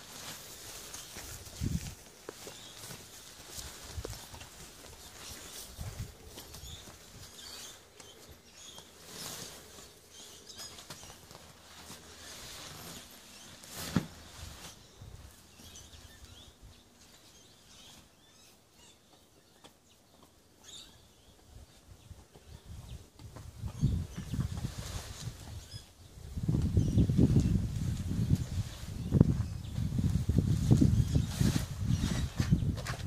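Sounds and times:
nylon fabric rustling: 8.7s - 15.5s.

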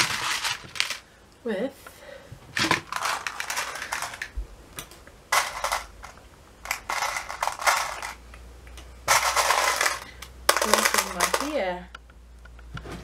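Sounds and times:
hands rummaging in plastic container: 0.0s - 1.0s, 2.5s - 4.4s, 5.3s - 8.2s, 9.1s - 11.6s.

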